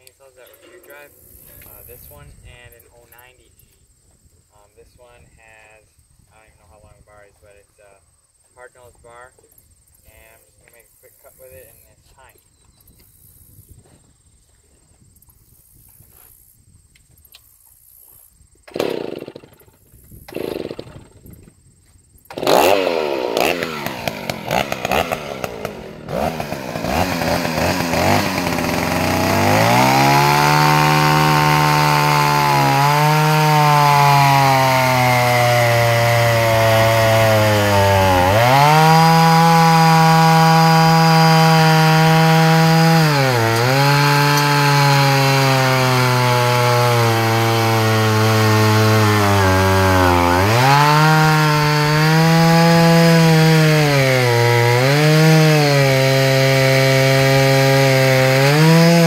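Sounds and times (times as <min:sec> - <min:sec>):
chainsaw sawing through log: 0:00.0 - 0:03.4, 0:18.7 - 0:19.7, 0:20.3 - 0:21.2, 0:22.3 - 0:59.0
starter rope pulls: 0:18.7 - 0:19.7, 0:20.3 - 0:21.1, 0:22.3 - 0:59.0
chainsaw engine running: 0:18.7 - 0:21.2, 0:22.3 - 0:59.0.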